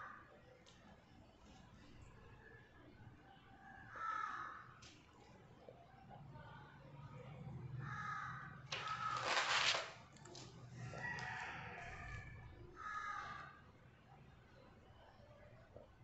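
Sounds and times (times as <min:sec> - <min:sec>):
paper page rustling: 0:08.7 - 0:10.5.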